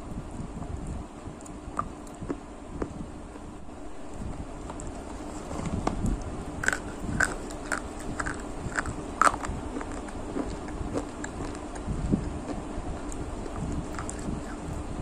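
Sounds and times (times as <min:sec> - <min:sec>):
chewing and wet mouth sounds: 0:06.0 - 0:14.8.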